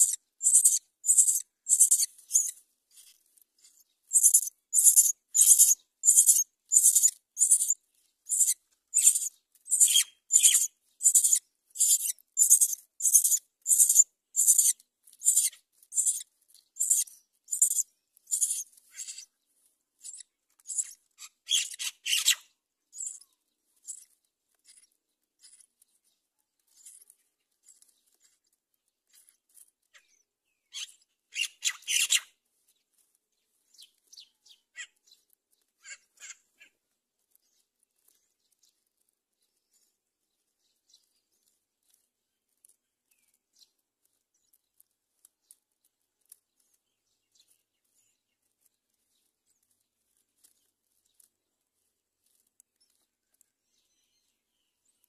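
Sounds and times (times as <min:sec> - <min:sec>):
nestlings begging calls: 0:00.0 - 0:02.5, 0:04.1 - 0:16.2, 0:16.8 - 0:19.2.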